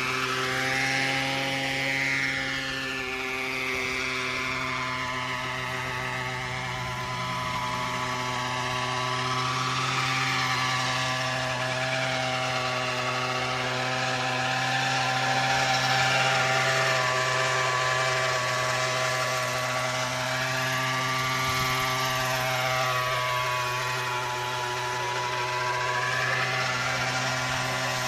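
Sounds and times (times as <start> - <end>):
model helicopter engine and rotor: 0.0 - 28.0.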